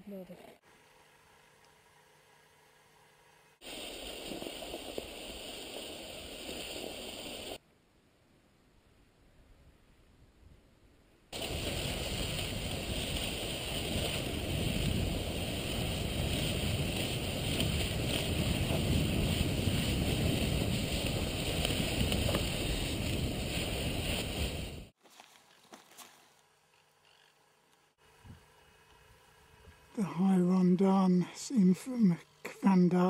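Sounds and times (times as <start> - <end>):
skis running in tracks: 3.6 - 7.6, 11.4 - 27.3
wind on microphone: 11.4 - 24.9.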